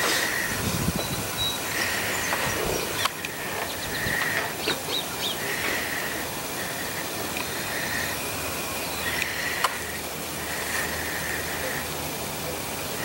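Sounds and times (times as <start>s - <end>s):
bird chirping: 1.0s - 5.8s.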